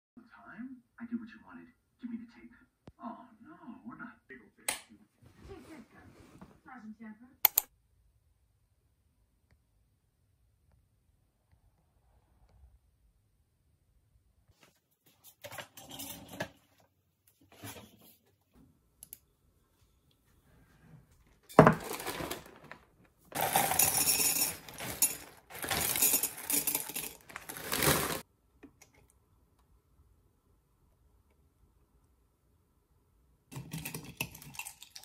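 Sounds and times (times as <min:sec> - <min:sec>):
cereal rattling into a ceramic mug: 0:21.6 - 0:28.2, 0:33.6 - 0:35.0.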